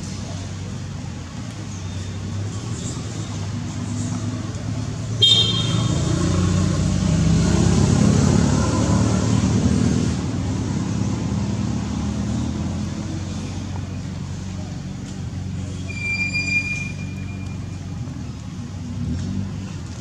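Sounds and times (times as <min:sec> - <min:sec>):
vehicle passing on road: 0:00.0 - 0:20.0
short high-pitched horn toot: 0:15.9 - 0:17.6.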